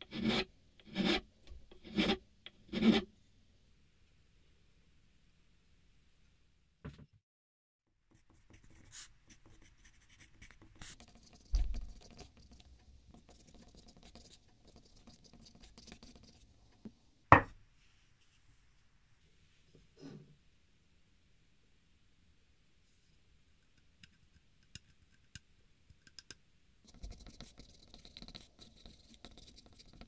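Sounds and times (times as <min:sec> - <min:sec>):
pencil writing on paper: 0:00.0 - 0:01.2, 0:01.8 - 0:03.0, 0:08.4 - 0:16.4, 0:26.9 - 0:30.0.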